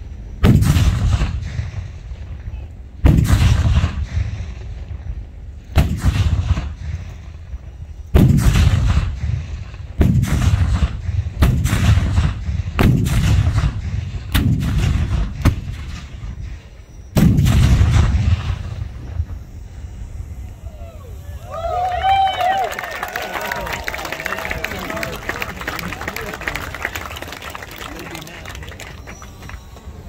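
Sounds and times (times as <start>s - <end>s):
cannons firing: 0.4s - 5.1s, 5.7s - 7.3s, 8.1s - 19.9s.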